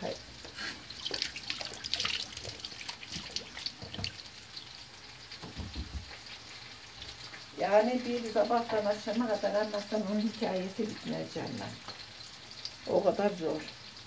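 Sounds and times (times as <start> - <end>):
peppers sizzling in oil: 0.0 - 1.5, 2.6 - 14.0
soft knocks: 5.4 - 6.2.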